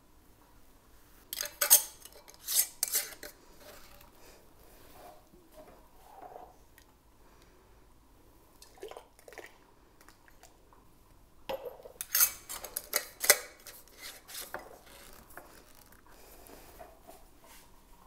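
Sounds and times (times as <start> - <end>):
ladle in a pot: 1.3 - 4.1, 11.5 - 15.8.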